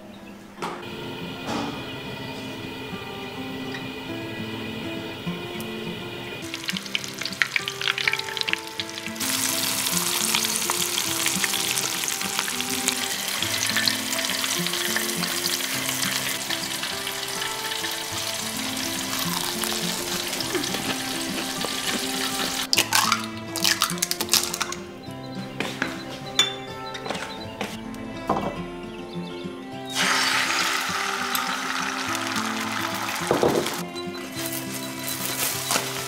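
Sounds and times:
shrimp deep-frying in oil: 6.4 - 24.7, 29.9 - 33.8, 34.4 - 36.0
egg cracking on bowl rim: 6.5 - 14.0, 20.5 - 24.9.

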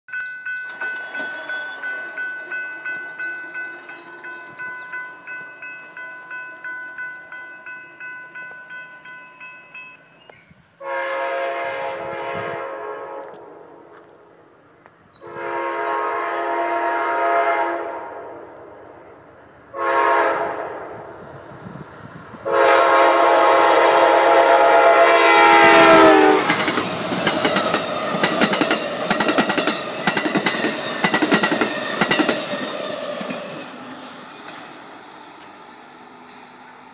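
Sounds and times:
crossing signal bell ringing: 0.1 - 10.3
train wheels on rails: 0.1 - 10.8, 11.9 - 36.9
clickety-clack over rail joints: 0.2 - 7.1, 25.8 - 35.6
locomotive horn blasts: 10.8 - 13.5, 15.2 - 18.5, 19.7 - 20.8, 22.4 - 26.7.

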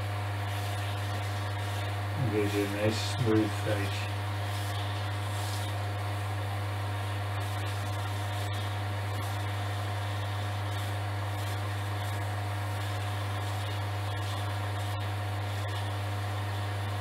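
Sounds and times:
sandpaper hissing on wood: 4.5 - 5.8.

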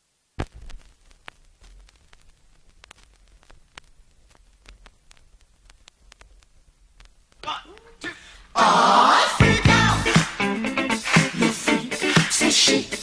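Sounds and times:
vinyl crackles and pops: 0.0 - 13.0
low record rumble: 0.2 - 8.6.

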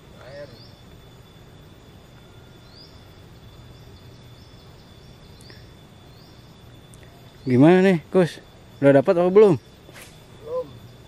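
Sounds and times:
high insect drone: 0.0 - 11.0.

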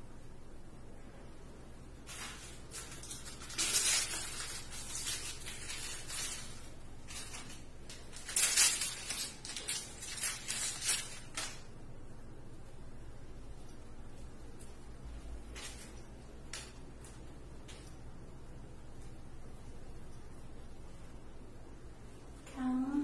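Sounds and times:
bandage rustling and scraping: 2.0 - 11.7.

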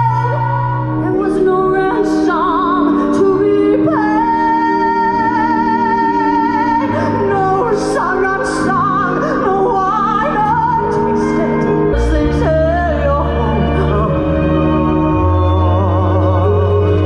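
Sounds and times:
backing track music: 0.0 - 17.0
woman singing with vibrato: 0.0 - 17.0.

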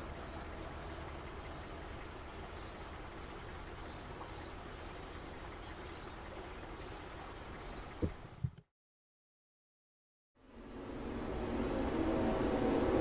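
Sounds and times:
small birds chirping: 0.1 - 8.4.

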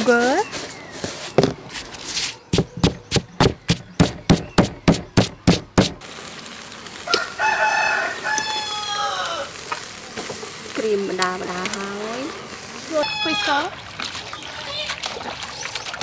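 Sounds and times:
pestle pounding in stone mortar: 2.5 - 6.0
rooster crowing: 7.0 - 9.6, 13.0 - 13.6.

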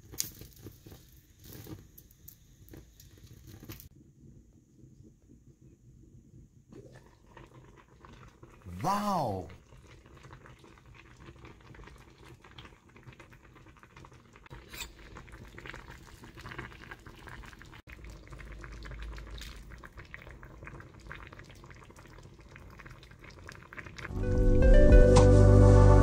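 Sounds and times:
broth bubbling and popping: 6.7 - 8.7, 9.6 - 24.1.

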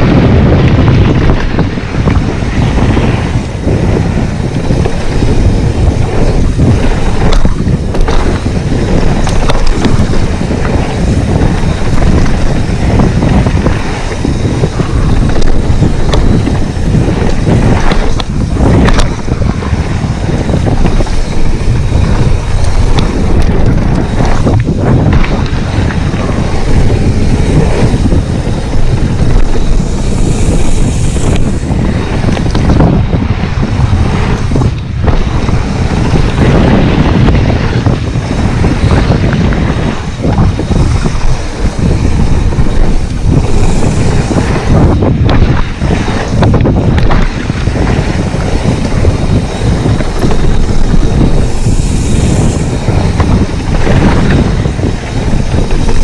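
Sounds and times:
bike knocks and rattles: 0.0 - 56.0
wind buffeting microphone: 0.0 - 56.0.

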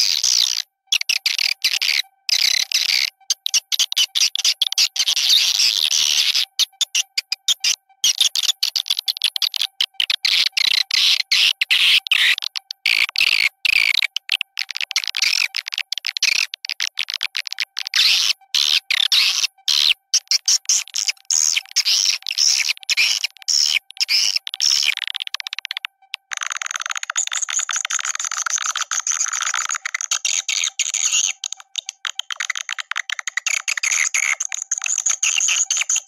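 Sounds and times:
swiftlet twittering: 0.0 - 36.0.

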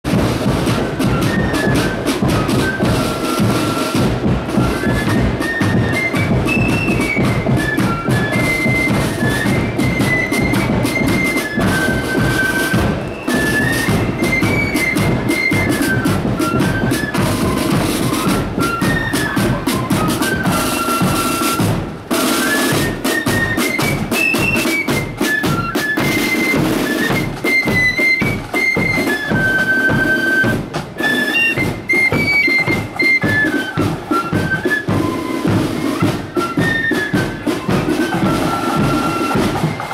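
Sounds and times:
side drum rolls: 0.0 - 39.9
flutes playing high melody: 0.1 - 39.9.

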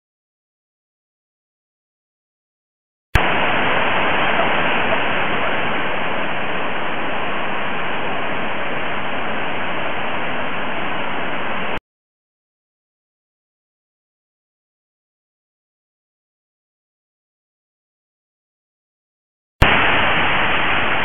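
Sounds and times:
river rapids roaring: 3.2 - 11.8, 19.6 - 21.0.

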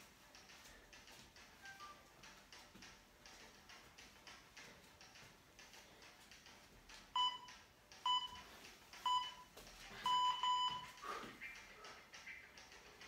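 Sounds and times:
longer electronic beeps: 9.1 - 11.0
short electronic beeps: 10.1 - 10.9.

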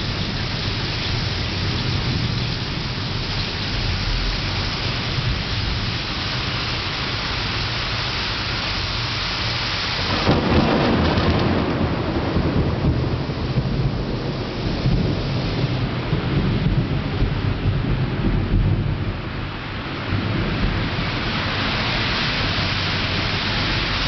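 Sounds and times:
rain pouring: 0.0 - 24.0
thunder rumbling: 9.9 - 24.0.

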